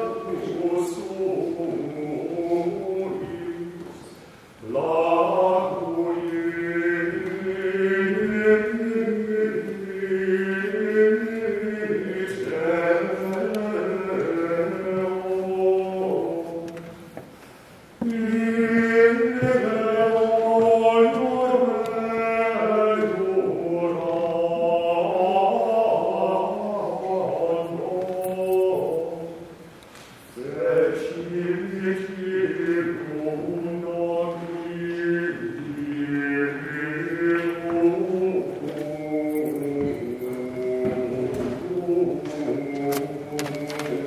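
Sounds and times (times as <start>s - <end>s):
voices singing a chant: 0.0s - 17.0s, 18.0s - 29.6s, 30.4s - 44.0s.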